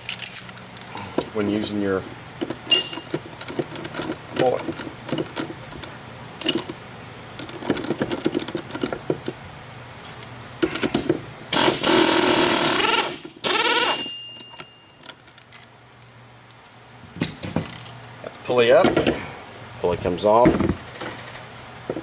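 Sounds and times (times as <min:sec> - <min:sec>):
air wrench bursts: 0:11.5 - 0:14.1.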